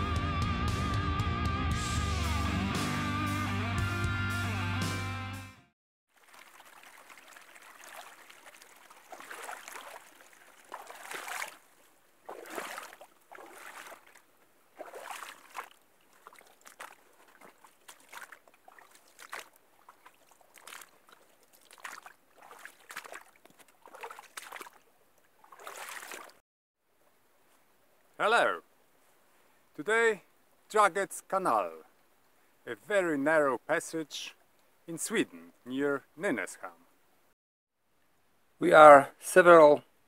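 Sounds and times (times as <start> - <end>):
stream trickling and gurgling: 6.1 - 29.7, 31.8 - 32.7, 34.3 - 36.2.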